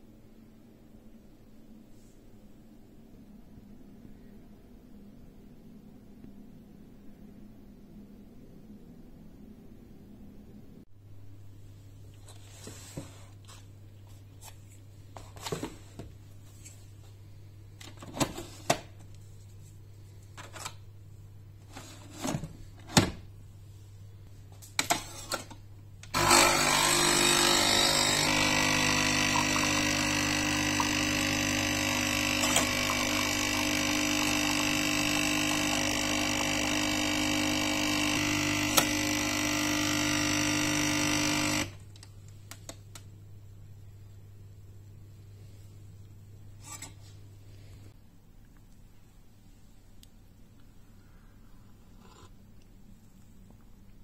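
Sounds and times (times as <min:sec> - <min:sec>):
coffee machine pump buzzing: 0:26.1 - 0:41.9.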